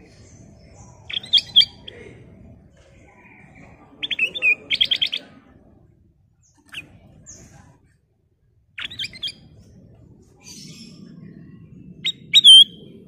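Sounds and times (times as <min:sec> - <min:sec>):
bird chirping: 0:00.0 - 0:02.1, 0:03.1 - 0:05.4, 0:06.4 - 0:07.6, 0:08.8 - 0:09.6, 0:10.3 - 0:13.0.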